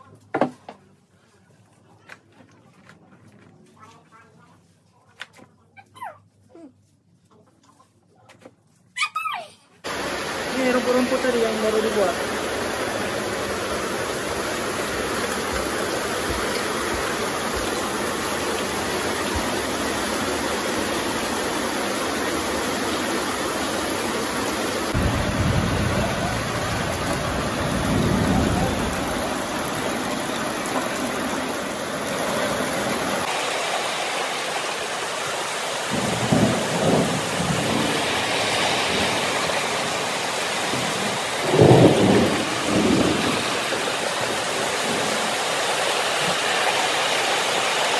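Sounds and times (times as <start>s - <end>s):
heavy rain on roof and concrete: 9.8s - 47.9s
low rumbles: 23.4s - 33.2s.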